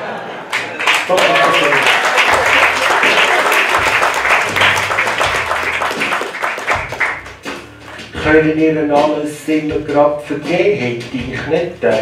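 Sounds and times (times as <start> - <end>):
audience applauding: 0.4 - 8.0.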